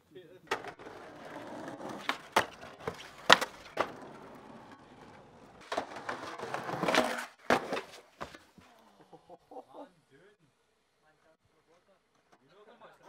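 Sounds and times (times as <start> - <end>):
skateboard wheels rolling: 0.4 - 8.6
skateboard deck clacking on concrete: 0.5 - 8.5.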